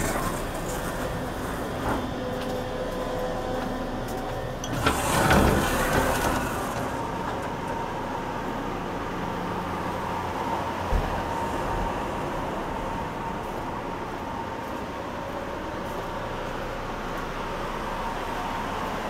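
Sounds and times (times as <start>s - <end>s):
sliding door rushing clatter: 0.0s - 2.3s, 4.6s - 7.8s
train car hum: 0.0s - 19.0s.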